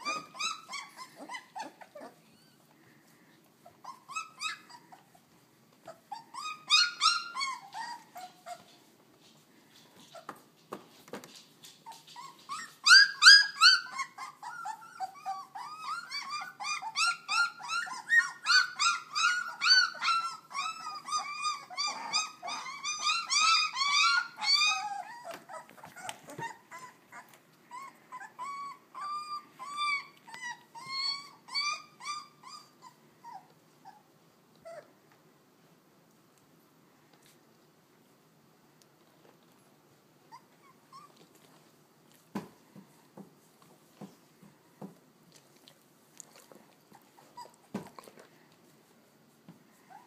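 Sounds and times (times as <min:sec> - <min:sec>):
puppies whining and yelping: 0:00.0 - 0:10.6, 0:11.6 - 0:35.0, 0:40.2 - 0:41.8, 0:46.2 - 0:48.7, 0:49.7 - 0:50.0.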